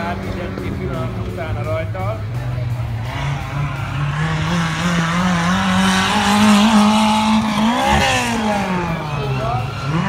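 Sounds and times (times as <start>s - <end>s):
race car engine accelerating: 0.0s - 10.0s.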